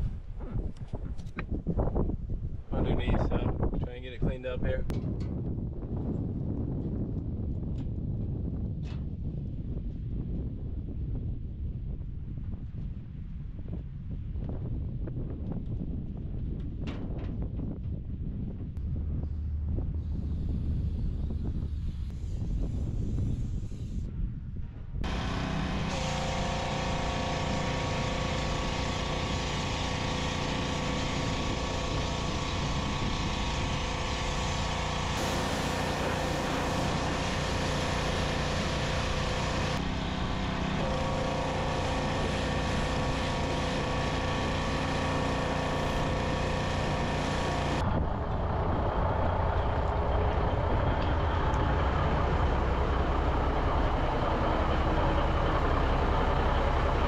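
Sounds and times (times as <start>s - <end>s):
deep low engine rumble: 0.0s - 57.0s
engine running: 18.7s - 23.7s, 25.0s - 57.0s
spraying water hiss: 34.2s - 39.7s.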